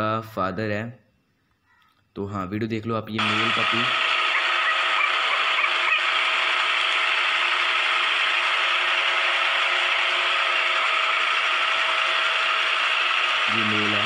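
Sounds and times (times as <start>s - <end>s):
machine whirring: 3.2s - 14.0s.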